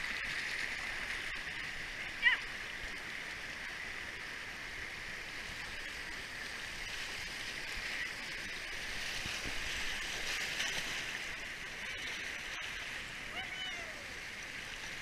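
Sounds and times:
water rushing over rocky rapids: 0.0s - 15.0s.

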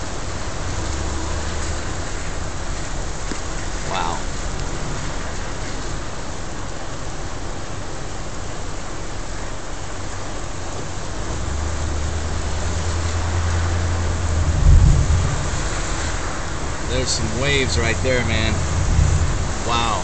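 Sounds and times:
rain hissing: 0.0s - 20.0s
wind buffeting microphone: 10.8s - 20.0s.

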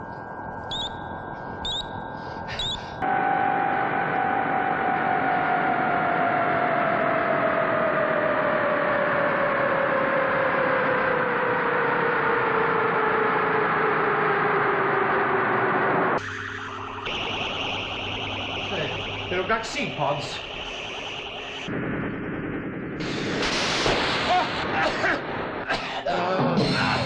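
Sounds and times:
rocket launch rushing noise: 21.7s - 25.7s.

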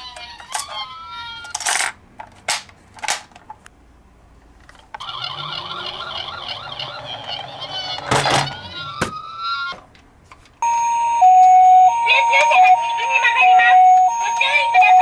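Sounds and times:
toy voice or jingle: 0.0s - 1.7s, 11.2s - 15.0s
two-tone toy ambulance siren: 0.0s - 1.7s, 5.0s - 9.8s, 10.6s - 15.0s
warbling toy siren: 0.0s - 1.7s, 5.0s - 9.8s, 10.6s - 15.0s.

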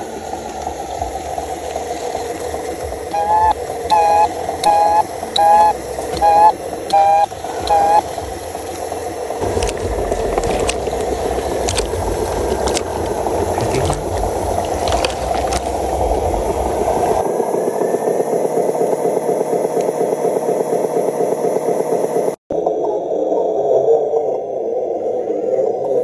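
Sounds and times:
toy truck motor running: 3.1s - 8.1s
two-tone electronic beeps: 3.1s - 8.1s.

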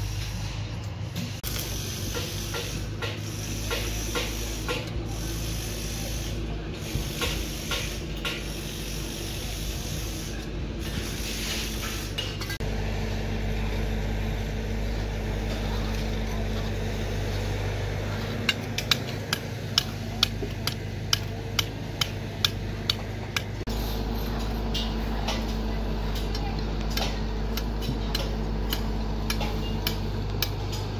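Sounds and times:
low hum and scraping: 0.0s - 30.9s
hammer striking steel rebar: 1.5s - 4.9s, 18.4s - 23.6s, 26.1s - 30.8s.

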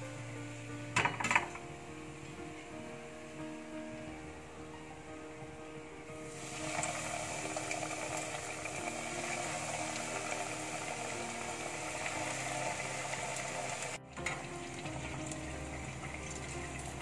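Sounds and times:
food sizzling in hot oil: 6.3s - 17.0s.

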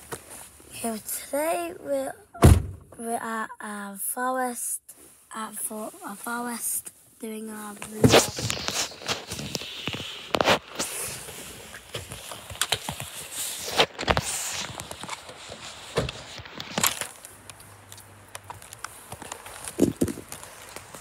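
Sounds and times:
fabric brushing over microphone: 7.6s - 16.9s.

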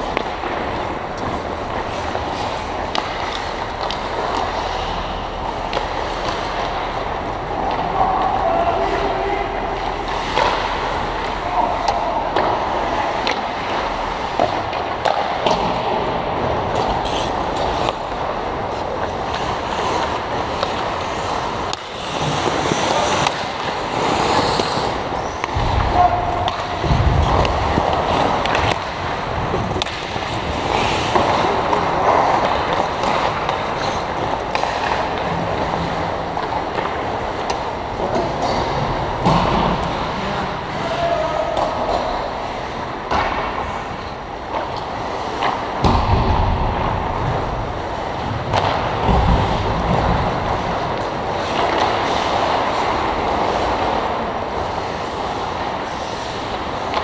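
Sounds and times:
skate blades scraping ice: 0.0s - 46.0s, 46.6s - 57.0s
sticks and puck clacking: 0.0s - 57.0s
distant shouts: 25.8s - 26.8s, 40.7s - 42.1s.

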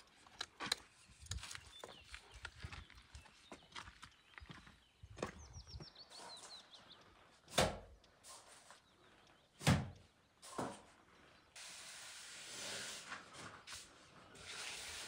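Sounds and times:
steady hiss: 11.6s - 15.0s.

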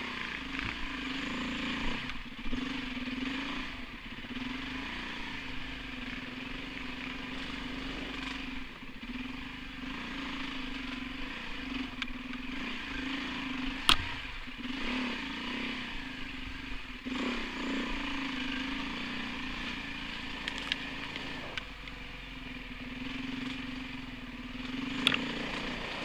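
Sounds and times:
off-road motorcycle engine: 0.0s - 26.0s
wind and tyre noise: 0.0s - 26.0s.

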